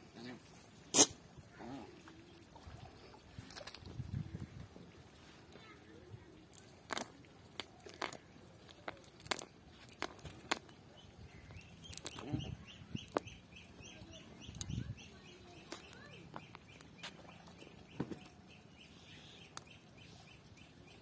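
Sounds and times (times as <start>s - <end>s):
bird calling: 11.4s - 21.0s.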